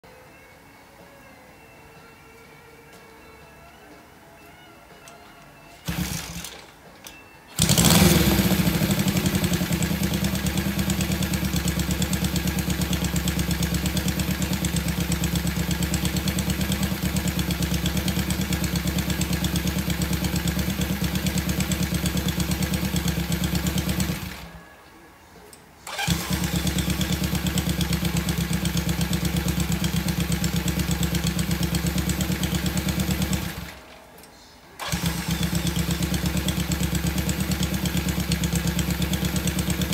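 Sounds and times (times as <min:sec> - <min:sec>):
motorcycle engine idling: 0:05.8 - 0:06.6, 0:07.6 - 0:24.5, 0:25.9 - 0:33.8, 0:34.8 - 0:39.9.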